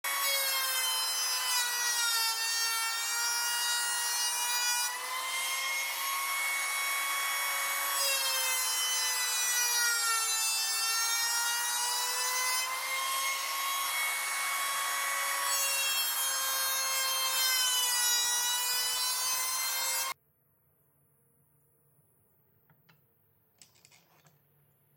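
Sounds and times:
electric planer whining: 0:04.8 - 0:10.4, 0:11.0 - 0:20.2.

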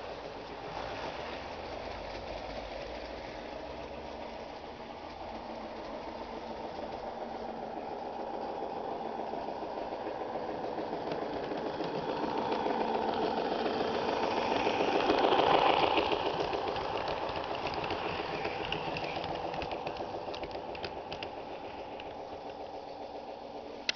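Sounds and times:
freight cars rumbling on track: 0:00.0 - 0:23.9
model steam locomotive chuffing: 0:00.0 - 0:23.9
sharp clicks of cars on track: 0:10.9 - 0:22.9.

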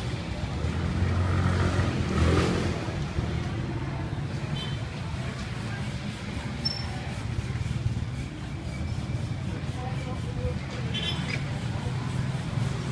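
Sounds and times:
street noise: 0:00.0 - 0:12.9
vehicle passing: 0:00.2 - 0:04.1.

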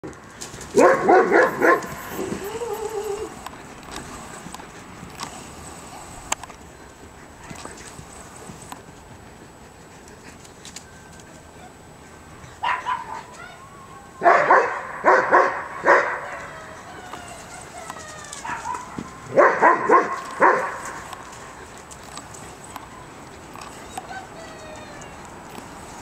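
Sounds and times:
dog barking: 0:00.8 - 0:03.3, 0:12.6 - 0:13.3, 0:14.2 - 0:16.7, 0:18.4 - 0:21.1.

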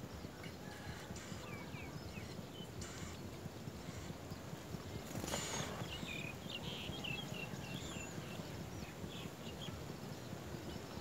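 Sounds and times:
nestlings chirping: 0:01.3 - 0:09.7
whirr of small wings: 0:02.8 - 0:06.5.

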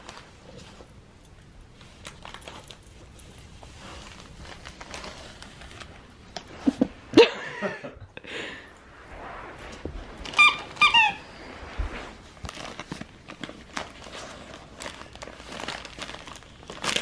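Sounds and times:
rustling and scuffling: 0:00.0 - 0:07.1, 0:08.7 - 0:17.0
puppy making pitched sounds: 0:10.4 - 0:11.4.

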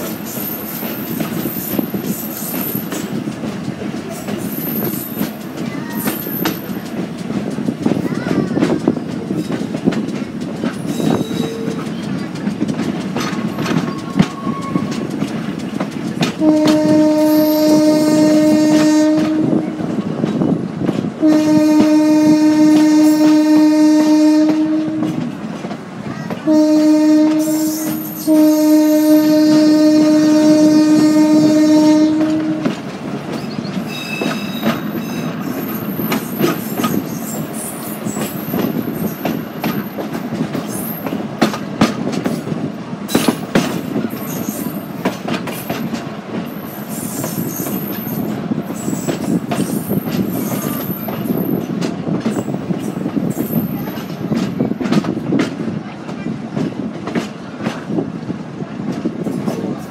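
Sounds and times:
train wheels clickety-clack: 0:00.0 - 0:59.9
train horn blasts: 0:16.4 - 0:20.0, 0:21.2 - 0:25.3, 0:26.4 - 0:32.9.

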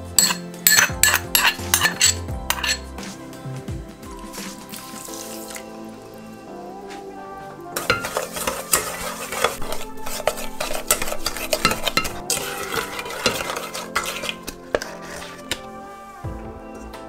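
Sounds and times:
spoon scraping a pot: 0:00.1 - 0:03.0, 0:07.8 - 0:15.8.

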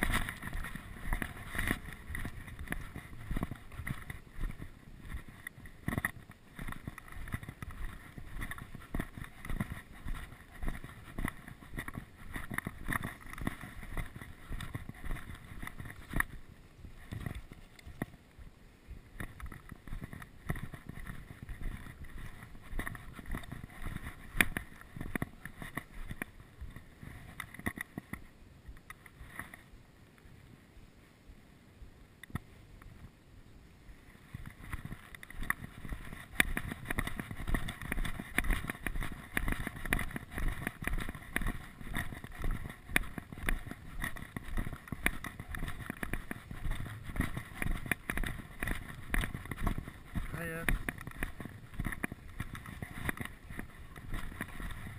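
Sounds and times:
footsteps on gravel: 0:00.0 - 0:28.0, 0:34.5 - 0:54.9
knocks and scuffs: 0:00.0 - 0:29.6, 0:34.3 - 0:54.9.

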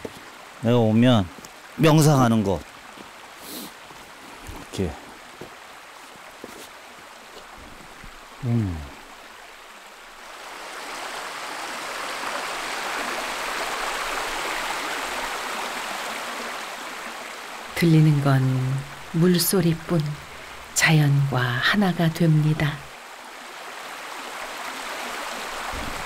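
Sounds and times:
stream running over rocks: 0:00.0 - 0:26.0
short voice-like sound: 0:08.4 - 0:09.0.

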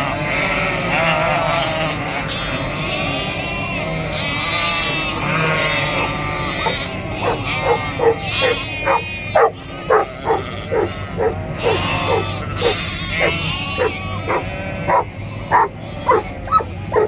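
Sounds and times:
sheep and lambs bleating: 0:00.0 - 0:17.0
low engine hum: 0:01.7 - 0:17.0
dog barking rapidly: 0:06.6 - 0:17.0.

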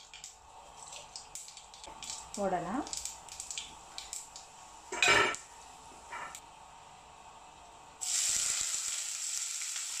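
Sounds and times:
onions sizzling in hot oil: 0:07.9 - 0:10.0.

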